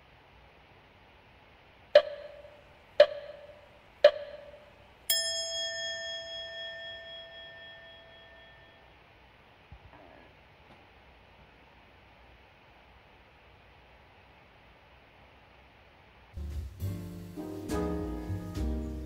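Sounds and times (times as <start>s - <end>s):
short tapping blips: 2.0s - 4.8s
bell chime: 5.1s - 8.8s.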